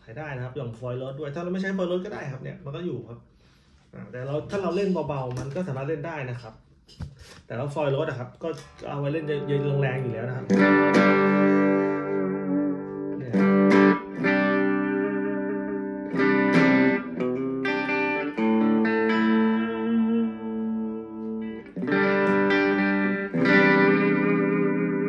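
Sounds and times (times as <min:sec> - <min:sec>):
electric guitar chords strummed: 0:08.8 - 0:25.0.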